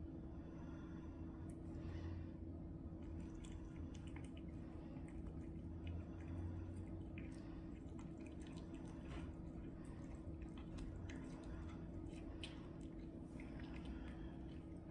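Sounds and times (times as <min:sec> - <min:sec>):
faint steady hum: 0:00.0 - 0:14.9
cats chewing raw meat: 0:03.0 - 0:14.9.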